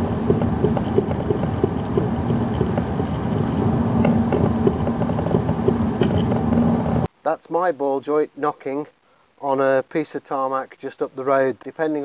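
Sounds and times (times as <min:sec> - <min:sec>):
car engine and road noise: 0:00.0 - 0:07.1
suspension knocks: 0:00.0 - 0:07.1.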